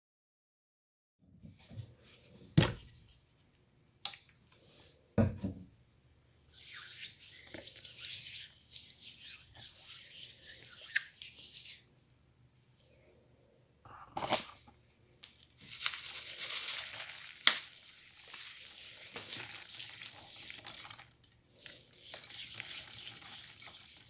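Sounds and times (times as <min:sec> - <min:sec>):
palms rubbing together: 0:06.6 - 0:11.9.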